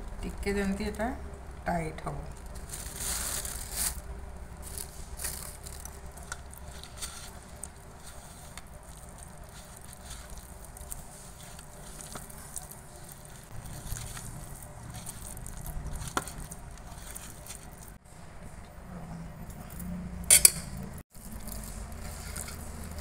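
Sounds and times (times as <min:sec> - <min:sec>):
hand squelching soft mash: 0:02.4 - 0:18.0, 0:21.1 - 0:23.0.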